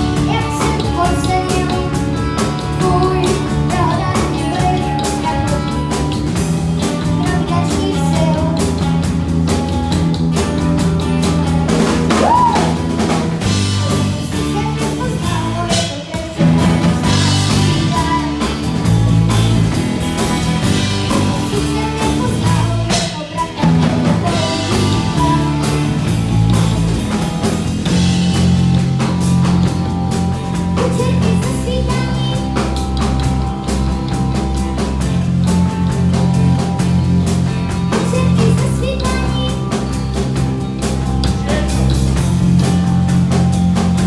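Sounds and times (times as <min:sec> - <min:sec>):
boy singing into microphone: 0:00.0 - 0:05.8, 0:07.0 - 0:08.8, 0:13.8 - 0:18.7, 0:21.1 - 0:25.9, 0:30.8 - 0:32.6, 0:38.0 - 0:39.6
drum kit: 0:00.0 - 0:44.0
electric bass: 0:00.0 - 0:44.0
electric guitars: 0:00.0 - 0:44.0.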